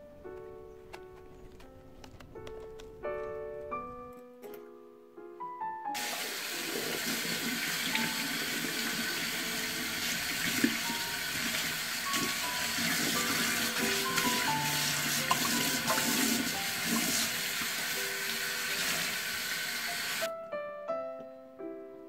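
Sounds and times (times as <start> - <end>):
soft background music: 0.0 - 22.0
tap running into steel sink: 15.1 - 17.7.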